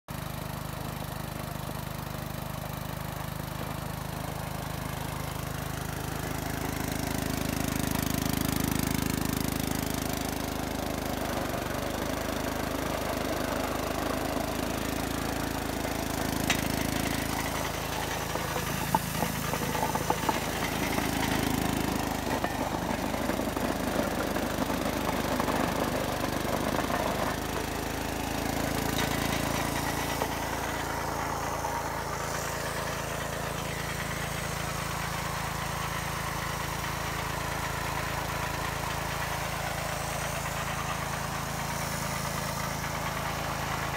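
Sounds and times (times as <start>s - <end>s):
small engine running: 0.1s - 43.9s
chainsaw bar cutting wood: 16.2s - 33.9s.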